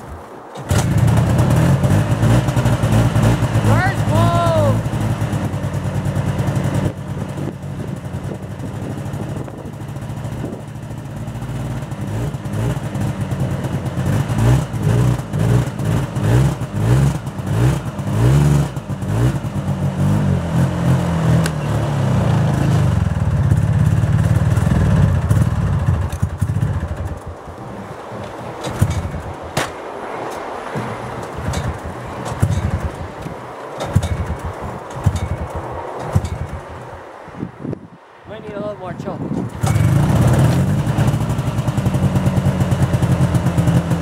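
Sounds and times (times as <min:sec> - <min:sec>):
snowmobile engine revving: 0:00.6 - 0:33.2, 0:38.4 - 0:44.0.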